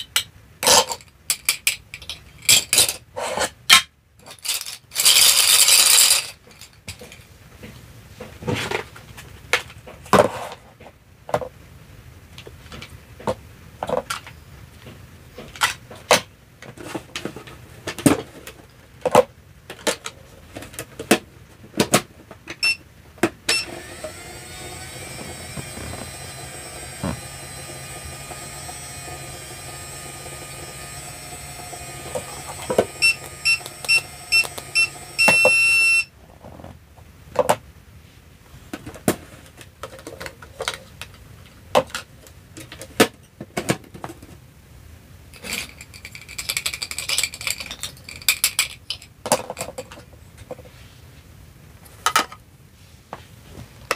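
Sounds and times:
plastic toy pieces clattering: 0.2 - 7.3, 39.5 - 41.2, 45.4 - 50.1
toy microwave beeping: 22.6 - 22.8, 23.5 - 36.1
toy microwave electronic hum: 23.5 - 36.1.

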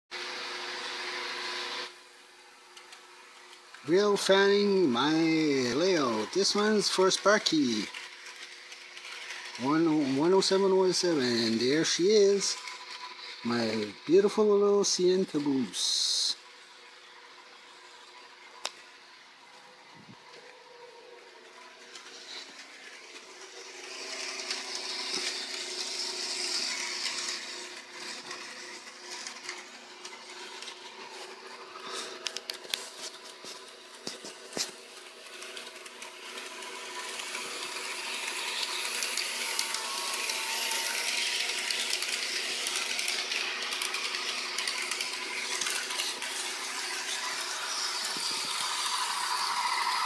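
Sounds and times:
wheels clicking over rails: 2.7 - 16.4, 20.3 - 50.0
electric motor whirring: 17.3 - 50.0.

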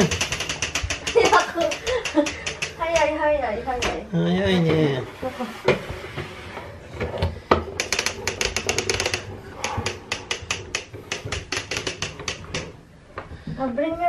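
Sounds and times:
wagon rolling on wooden floor: 4.5 - 12.8.

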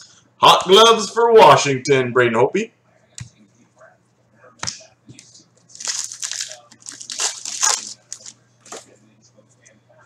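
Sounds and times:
foil wrapper tearing and crinkling: 5.7 - 8.4.

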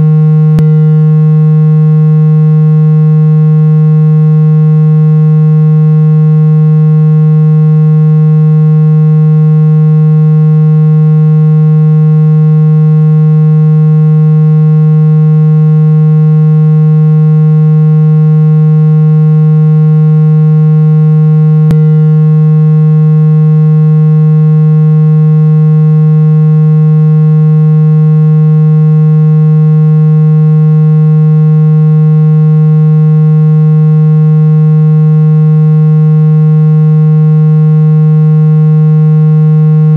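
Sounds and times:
low buzzy tone: 0.0 - 39.9
brief click: 0.6 - 0.8.

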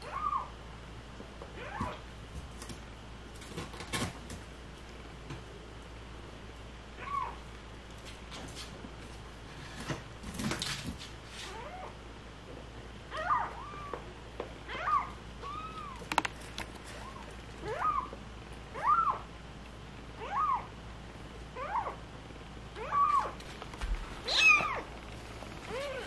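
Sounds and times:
kitten meowing: 24.2 - 25.0.

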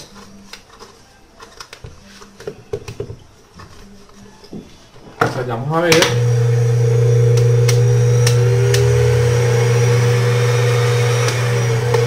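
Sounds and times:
blender motor running: 6.0 - 12.0.

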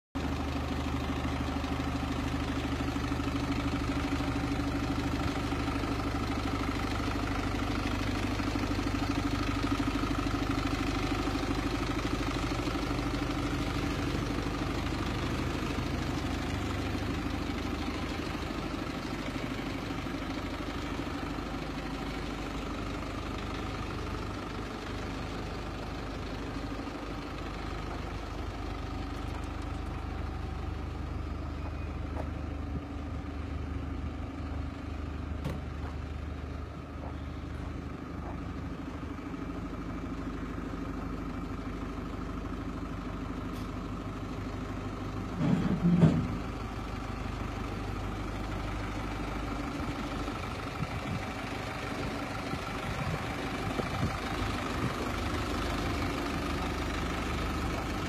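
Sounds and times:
diesel truck engine idling: 0.2 - 58.0.

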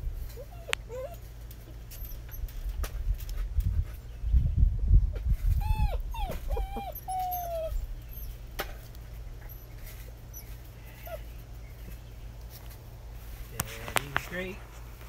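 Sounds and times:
puppy whining: 0.2 - 2.8, 5.3 - 12.0.

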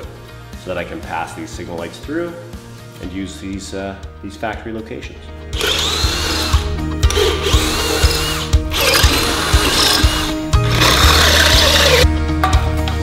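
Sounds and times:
background music with steady beat: 0.0 - 13.0
electric drill boring into metal: 5.6 - 12.1.

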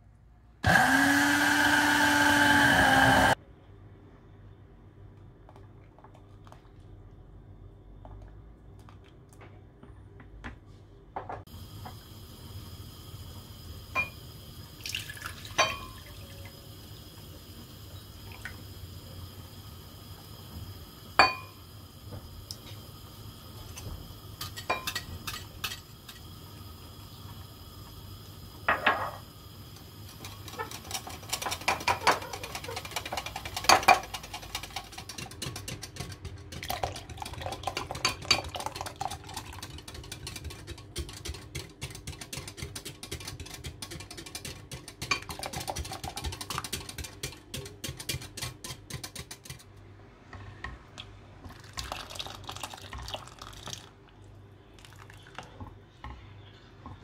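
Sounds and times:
whisk rattling against glass jug: 30.2 - 49.7.

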